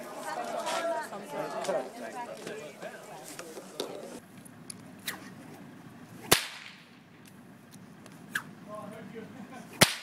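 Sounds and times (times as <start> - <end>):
whip cracking: 6.2 - 6.9, 9.8 - 10.0.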